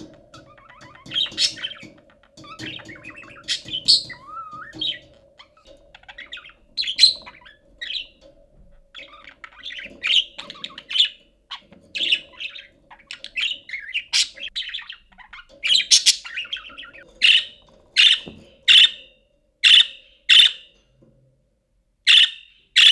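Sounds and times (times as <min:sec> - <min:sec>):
budgerigar chattering and chirping: 0:00.0 - 0:08.2, 0:09.0 - 0:19.0, 0:19.6 - 0:20.7, 0:22.1 - 0:22.9.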